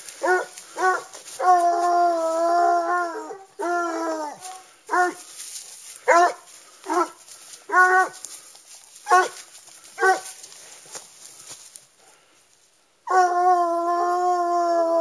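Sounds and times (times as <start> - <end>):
hound baying: 0.0 - 5.3, 6.0 - 8.3, 9.0 - 10.5.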